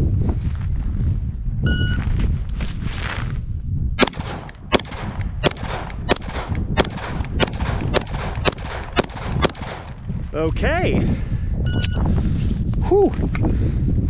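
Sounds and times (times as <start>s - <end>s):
pistol shots: 4.0s - 10.0s.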